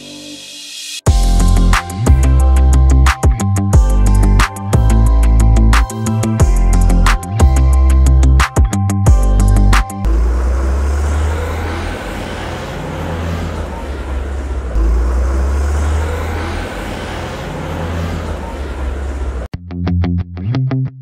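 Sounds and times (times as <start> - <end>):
music: 0.0 - 10.1, 19.5 - 21.0
vehicle road noise rumble: 9.2 - 19.5.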